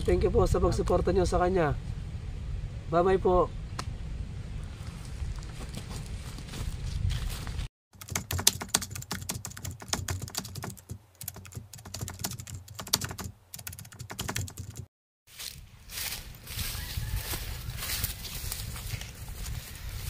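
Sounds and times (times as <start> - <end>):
keyboard typing clicks: 8.0 - 14.9.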